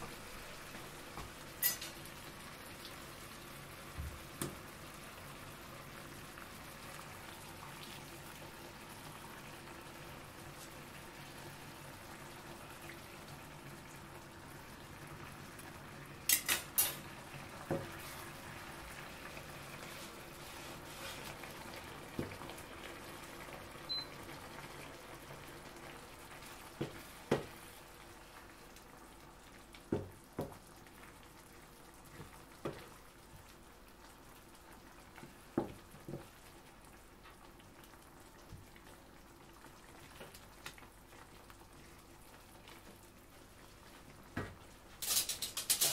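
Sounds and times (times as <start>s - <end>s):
sauce bubbling in a frying pan: 0.0s - 45.0s
wooden spatula knocking on pan: 26.8s - 27.5s, 29.9s - 30.6s.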